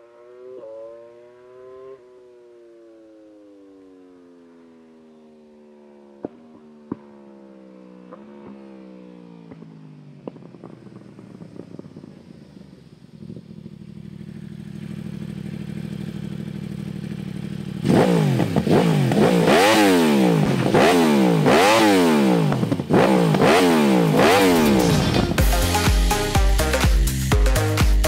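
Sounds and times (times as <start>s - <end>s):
motorcycle engine revving: 0.0s - 2.3s, 6.1s - 28.0s
motorcycle engine idling: 8.1s - 28.0s.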